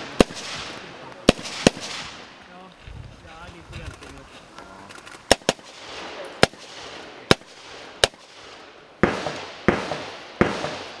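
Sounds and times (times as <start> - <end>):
rifle shots with echo: 0.0 - 2.4, 5.3 - 11.0.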